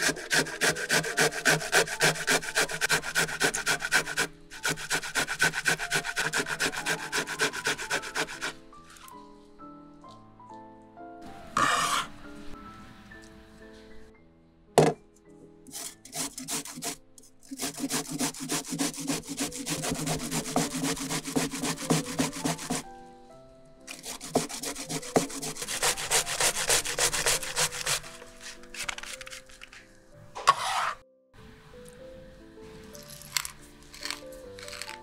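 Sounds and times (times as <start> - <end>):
onion grating on metal grater: 0.0 - 8.6, 11.6 - 12.1, 15.7 - 22.8, 23.9 - 29.8, 30.4 - 31.0, 33.9 - 35.0.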